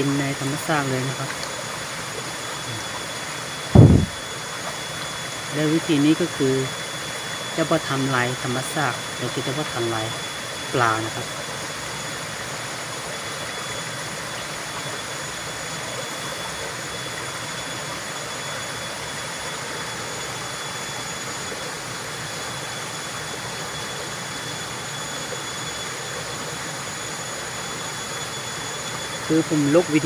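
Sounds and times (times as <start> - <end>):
forest stream rushing: 0.0 - 30.0.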